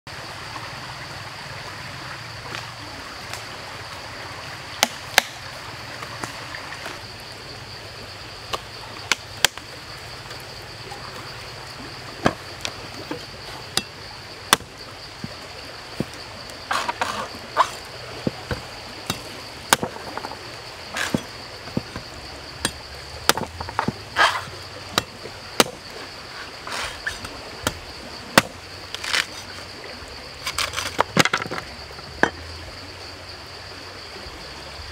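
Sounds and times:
cleaver hacking coconut husk: 0:16.7 - 0:20.3, 0:20.9 - 0:25.9, 0:28.4 - 0:29.5.

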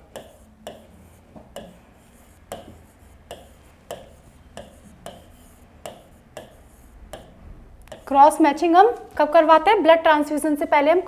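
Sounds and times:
marker tapping on board: 0:00.0 - 0:08.2
marker scratching on board: 0:00.0 - 0:08.4.

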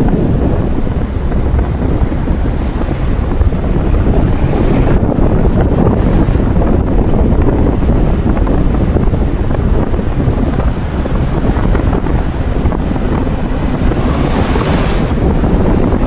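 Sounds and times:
vehicle driving rumble: 0:00.0 - 0:16.0
wind buffeting microphone: 0:00.0 - 0:16.0
truck passing close: 0:10.3 - 0:16.0.

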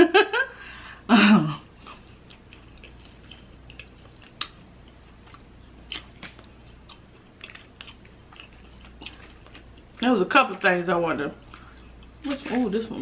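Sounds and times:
person chewing: 0:01.6 - 0:10.0, 0:11.4 - 0:13.0.

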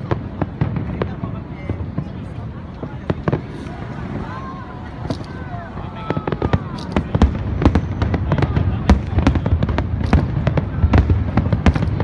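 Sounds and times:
low rumble of explosions: 0:00.0 - 0:12.0
firework shells bursting: 0:05.0 - 0:12.0.

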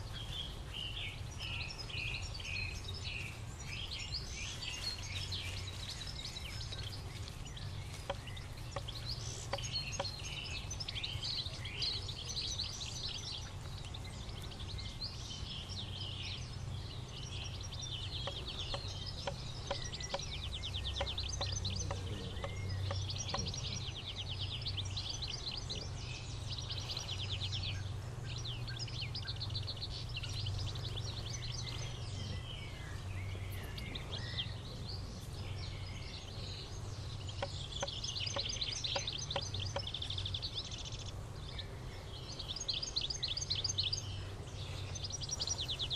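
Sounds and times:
birds singing and calling: 0:00.0 - 0:45.9
bird trills: 0:17.4 - 0:26.0, 0:37.0 - 0:41.1.

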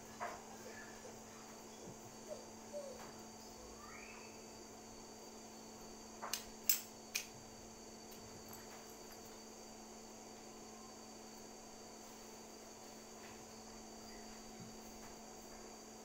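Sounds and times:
steady background hum: 0:00.0 - 0:16.0
sharp metal clicks: 0:06.3 - 0:07.3.

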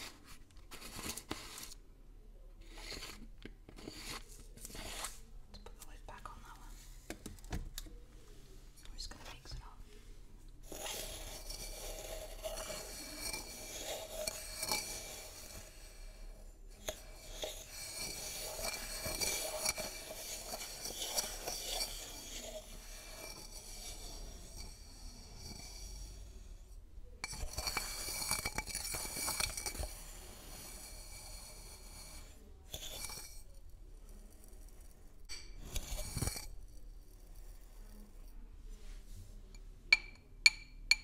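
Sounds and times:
metal spoon scraping glass: 0:02.6 - 0:03.2, 0:03.8 - 0:05.2, 0:10.6 - 0:26.5, 0:27.2 - 0:38.3.

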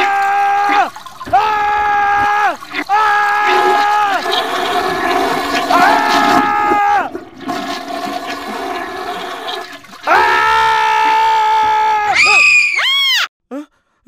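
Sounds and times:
man wailing: 0:00.0 - 0:04.3, 0:05.6 - 0:07.2, 0:10.0 - 0:12.5
rushing noise: 0:03.4 - 0:09.9.

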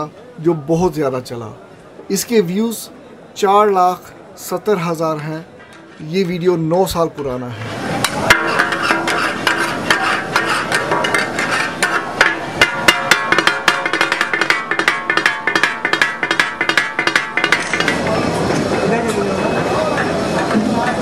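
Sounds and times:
metal spatulas striking iron griddle: 0:08.0 - 0:18.2.

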